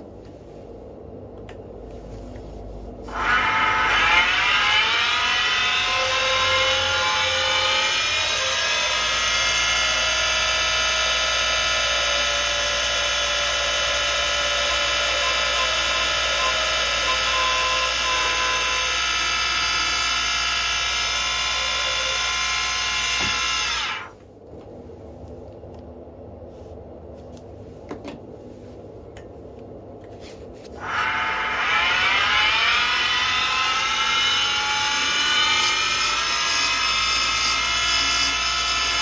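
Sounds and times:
wood lathe whining: 3.1s - 24.1s, 30.8s - 39.0s.

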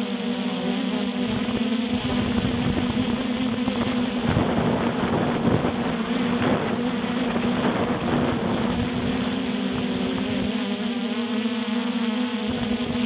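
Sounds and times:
drone propellers buzzing: 0.0s - 13.0s
wind buffeting microphone: 1.3s - 10.6s.

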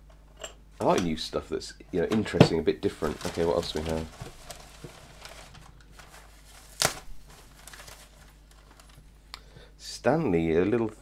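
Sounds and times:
paper packing rustling: 2.0s - 9.1s.

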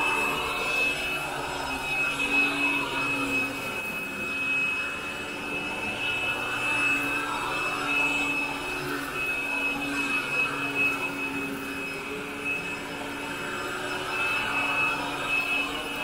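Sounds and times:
vacuum cleaner running on carpet: 0.0s - 16.0s.

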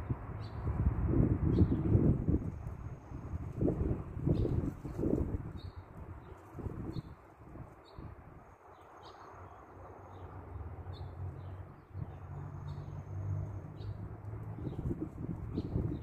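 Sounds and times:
small birds chirping: 4.3s - 16.0s.

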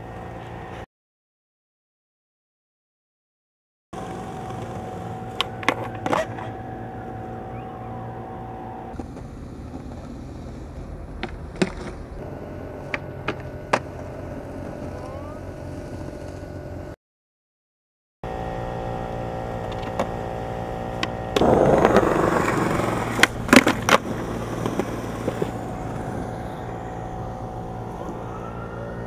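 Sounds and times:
skateboard rolling on concrete: 0.0s - 0.8s, 4.0s - 17.0s, 18.4s - 29.0s
skateboard popping and landing: 4.0s - 6.6s, 8.9s - 12.2s, 12.8s - 15.0s, 21.0s - 26.2s
steady background hum: 4.0s - 17.0s, 18.3s - 29.0s.

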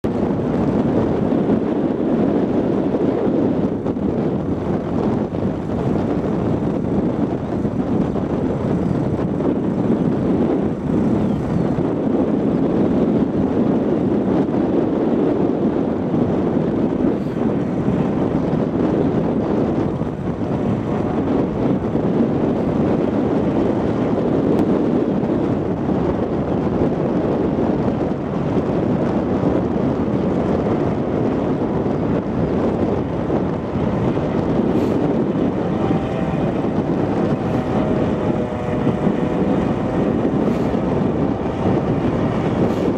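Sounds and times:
machine drone: 31.8s - 42.9s.

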